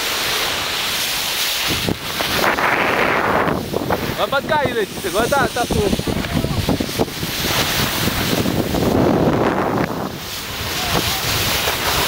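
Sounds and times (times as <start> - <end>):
wind buffeting microphone: 1.6 - 12.0.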